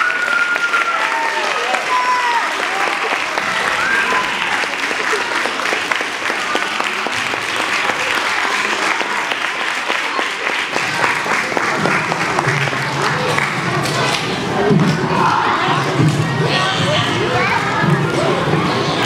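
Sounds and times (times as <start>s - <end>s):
audience applauding: 0.0s - 14.2s
voices: 0.0s - 19.0s.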